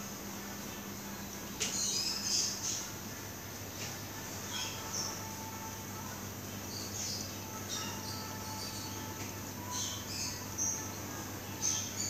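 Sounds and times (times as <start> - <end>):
steady low hum: 0.0 - 12.0
high-pitched chirping: 4.4 - 5.8, 6.6 - 12.0.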